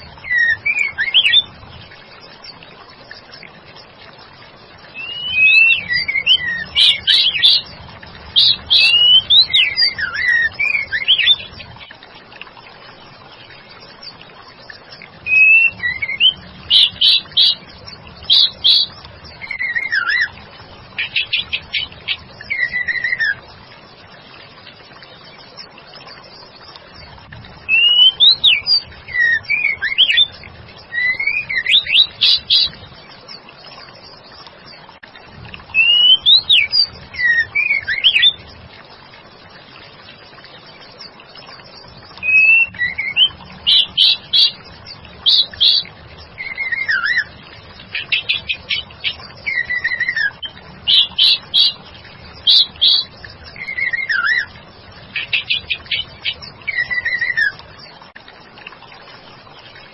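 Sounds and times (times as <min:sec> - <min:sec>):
bird whistled calls: 0:00.2 - 0:01.5, 0:05.0 - 0:07.6, 0:08.4 - 0:11.5, 0:15.2 - 0:17.6, 0:18.3 - 0:20.3, 0:21.0 - 0:23.4, 0:27.7 - 0:30.3, 0:30.9 - 0:32.7, 0:35.8 - 0:38.4, 0:42.2 - 0:44.6, 0:45.2 - 0:47.3, 0:48.0 - 0:51.8, 0:52.4 - 0:54.5, 0:55.2 - 0:57.6.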